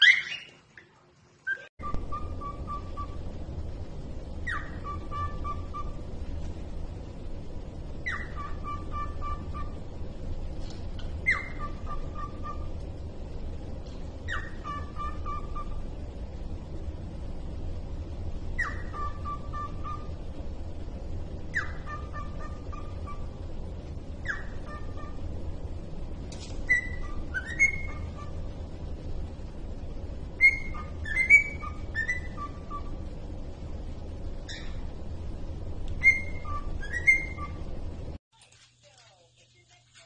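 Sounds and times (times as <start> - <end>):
cockatiel whistling: 0.0 - 0.6, 1.5 - 3.2, 4.4 - 6.1, 8.0 - 9.8, 11.0 - 12.8, 14.2 - 15.8, 18.5 - 20.2, 21.5 - 23.4, 24.2 - 25.2, 26.4 - 28.5, 30.4 - 33.1, 34.5 - 34.8, 35.9 - 37.7.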